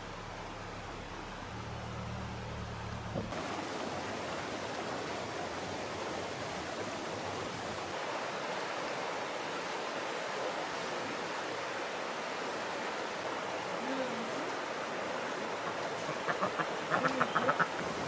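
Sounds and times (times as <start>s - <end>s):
low steady hum: 0.0s - 5.5s
river water rushing: 0.0s - 18.0s.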